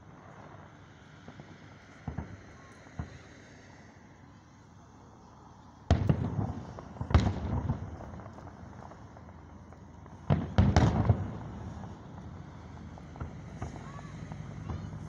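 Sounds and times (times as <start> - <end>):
firework shells booming: 1.3 - 3.3, 5.9 - 15.0.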